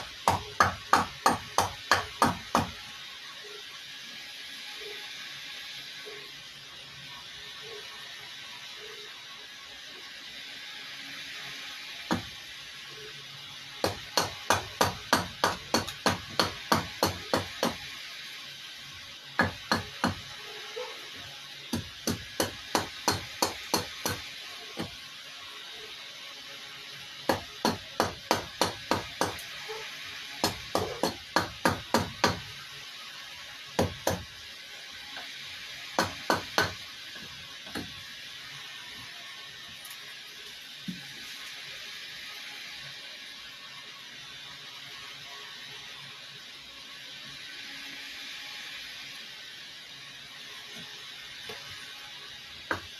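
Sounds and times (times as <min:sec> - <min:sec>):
hatchet chopping wood: 0:00.1 - 0:02.8, 0:12.1 - 0:12.3, 0:13.8 - 0:17.8, 0:19.4 - 0:20.2, 0:21.7 - 0:25.0, 0:27.3 - 0:29.4, 0:30.4 - 0:32.4, 0:33.8 - 0:34.3, 0:36.0 - 0:36.8, 0:37.7 - 0:37.9, 0:52.7 - 0:52.9.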